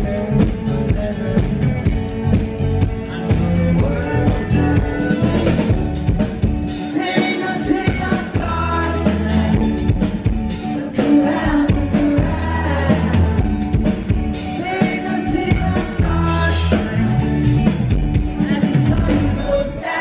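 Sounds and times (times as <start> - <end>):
man singing into microphone: 0.0 - 2.2, 3.0 - 5.9, 6.8 - 10.0, 10.6 - 13.6, 14.5 - 17.4, 18.3 - 20.0
strong bass: 0.0 - 6.8, 15.1 - 19.8
guitar: 0.0 - 20.0.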